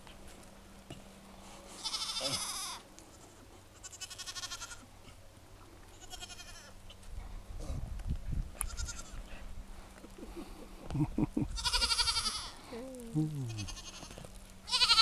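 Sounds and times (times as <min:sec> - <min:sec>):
goats bleating: 0:01.8 - 0:04.9, 0:05.9 - 0:06.9, 0:08.6 - 0:09.3, 0:11.4 - 0:15.0.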